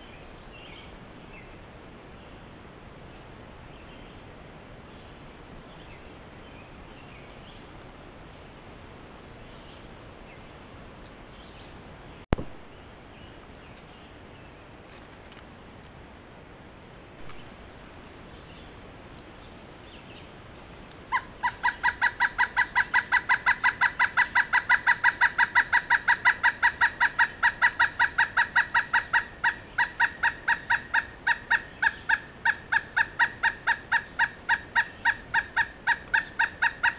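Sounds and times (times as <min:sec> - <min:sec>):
woodpecker calling: 0:21.0 - 0:36.9.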